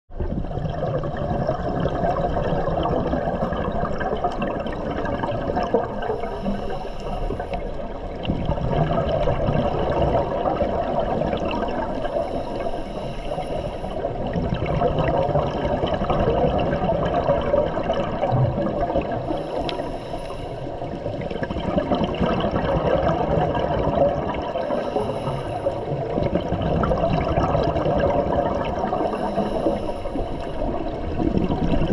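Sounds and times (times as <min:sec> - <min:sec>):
underwater exhaled bubbles rushing: 0:00.1 - 0:31.9
regulator hiss: 0:06.1 - 0:07.9, 0:11.9 - 0:14.1, 0:19.2 - 0:21.0, 0:24.6 - 0:26.0, 0:29.0 - 0:30.9.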